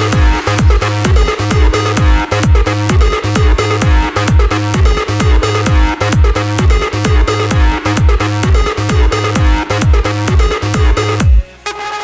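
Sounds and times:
four-on-the-floor kick drum: 0:00.0 - 0:11.4
sustained synth chords: 0:00.0 - 0:11.7.

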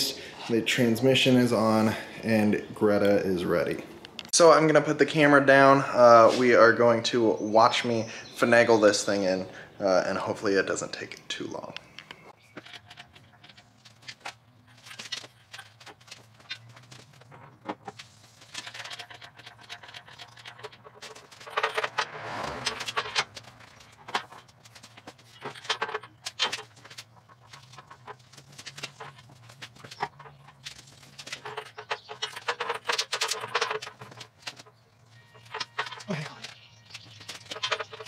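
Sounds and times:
engine hoist chain rattling: 0:12.5 - 0:38.0.

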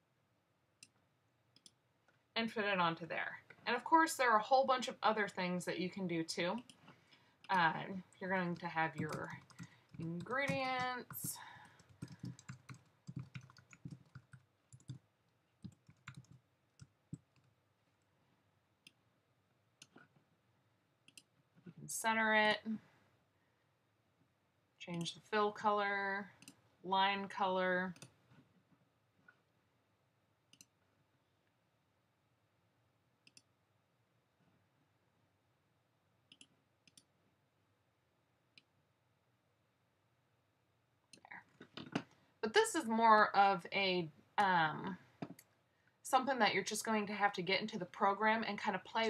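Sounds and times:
faint keyboard typing: 0:00.8 - 0:02.2, 0:06.6 - 0:17.6, 0:19.8 - 0:20.3, 0:21.0 - 0:21.9, 0:26.3 - 0:26.6, 0:27.9 - 0:28.4, 0:33.2 - 0:33.5, 0:36.3 - 0:37.1
faint computer mouse clicks: 0:33.2 - 0:33.5.

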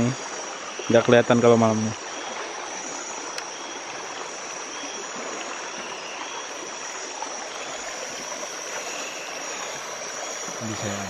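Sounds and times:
river flowing: 0:00.0 - 0:11.0
high-pitched drone: 0:06.4 - 0:11.0.

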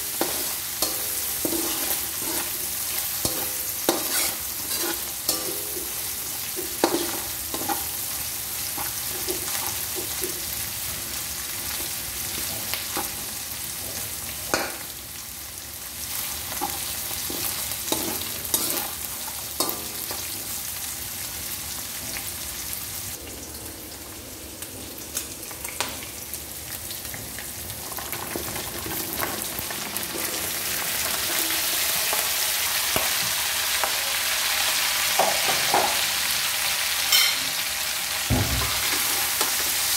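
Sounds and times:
meat sizzling in a wok: 0:00.0 - 0:39.9
spatula scraping and knocking pan: 0:00.1 - 0:06.0.

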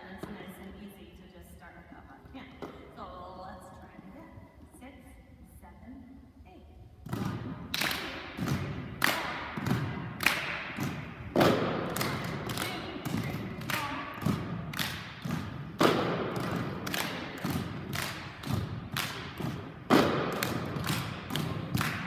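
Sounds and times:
hand claps: 0:07.7 - 0:22.0
plastic cups hitting wooden floor: 0:10.6 - 0:22.0.

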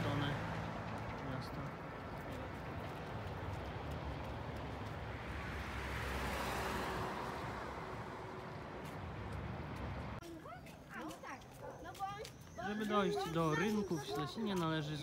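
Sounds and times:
car passing: 0:00.0 - 0:10.2.

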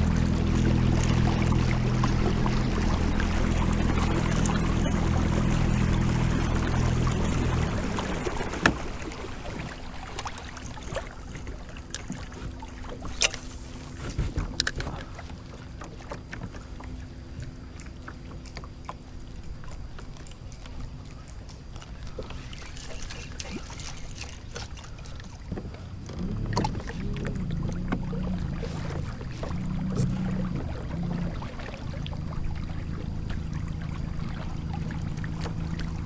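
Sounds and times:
low uneven hum: 0:00.0 - 0:36.0
fishing rod and reel clicking: 0:13.0 - 0:15.0.

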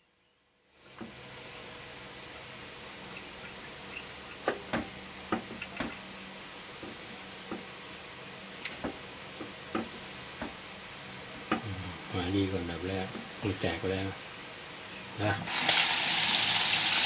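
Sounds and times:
steady low hum: 0:00.0 - 0:15.5.

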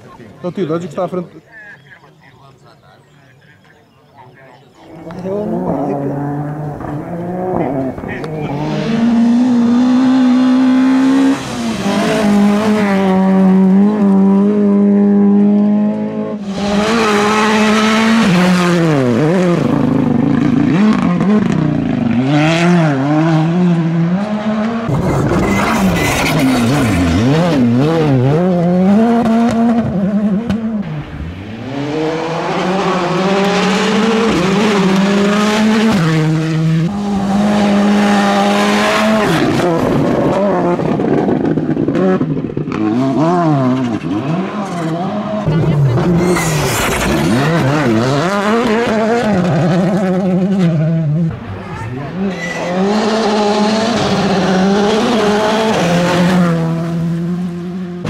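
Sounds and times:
rally car engines revving: 0:00.0 - 0:58.0.

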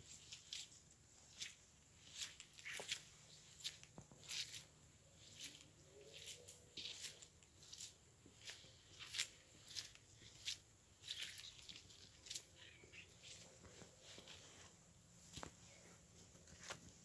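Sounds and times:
footsteps on wet muddy ground: 0:00.0 - 0:14.5.

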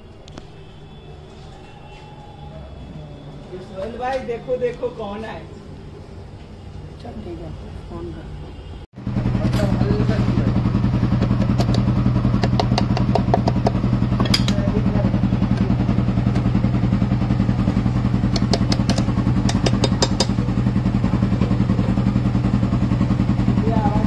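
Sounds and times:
engine idling: 0:09.0 - 0:24.0.

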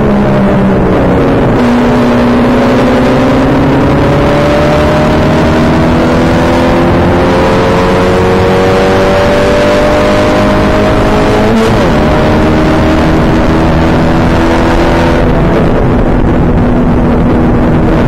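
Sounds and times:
race car engine: 0:00.0 - 0:18.0
wind and road noise: 0:00.0 - 0:18.0.

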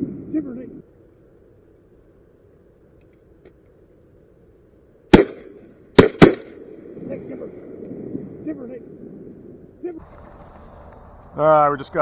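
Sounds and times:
shotgun shots with echo: 0:05.1 - 0:06.6.

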